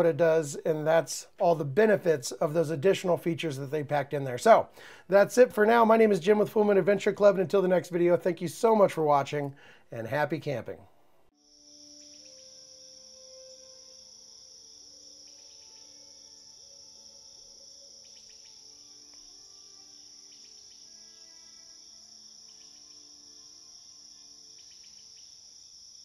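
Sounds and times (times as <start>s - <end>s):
crickets trilling: 11.3s - 26.0s.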